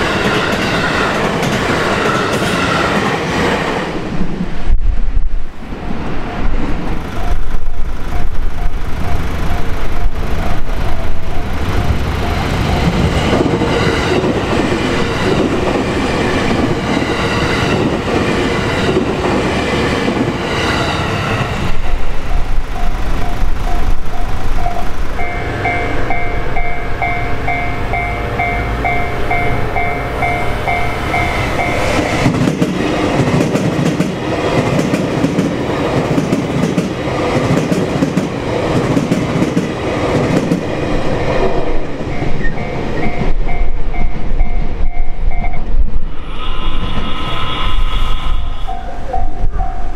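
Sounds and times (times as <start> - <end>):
train wheels clattering on rails: 0.0 - 3.7, 6.6 - 45.8
level crossing warning bell: 7.1 - 13.3, 21.9 - 32.3, 42.0 - 45.7, 48.7 - 49.9.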